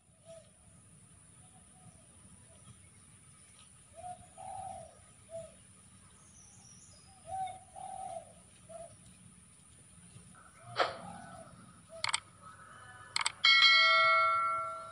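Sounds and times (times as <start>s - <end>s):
dove cooing: 3.9s - 5.6s, 7.2s - 9.1s, 10.4s - 13.0s.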